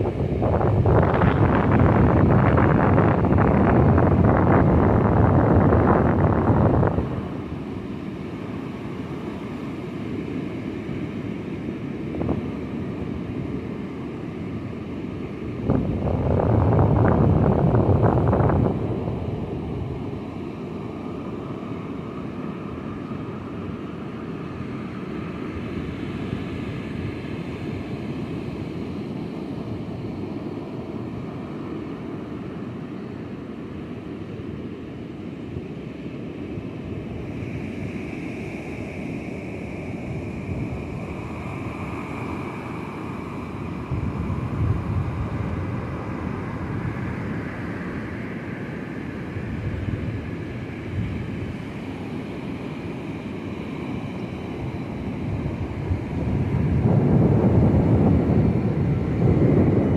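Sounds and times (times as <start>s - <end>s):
wind buffeting microphone: 0.0s - 8.2s, 15.2s - 21.5s, 39.3s - 52.2s, 54.5s - 59.9s.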